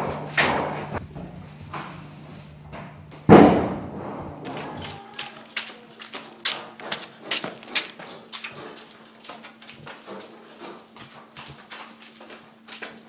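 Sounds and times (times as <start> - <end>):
footsteps going up stairs: 0.0 - 13.0
loud thump: 3.3 - 4.4.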